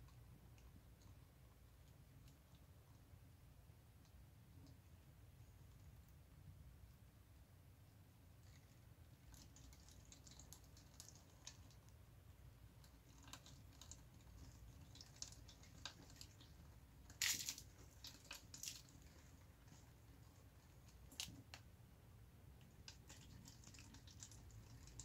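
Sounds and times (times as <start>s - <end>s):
plastic bottles crackling: 17.1s - 19.1s.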